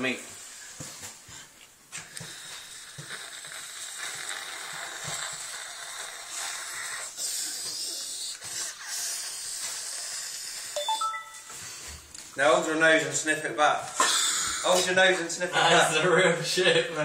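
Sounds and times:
man sniffing and snorting: 0.4 - 10.8.

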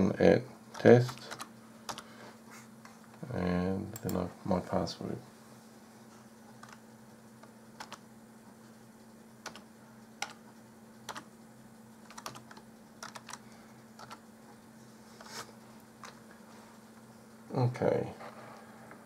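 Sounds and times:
faint steady hum: 0.0 - 19.0
keyboard keystrokes: 7.8 - 8.0, 9.4 - 9.6, 12.0 - 13.4, 14.0 - 14.2.

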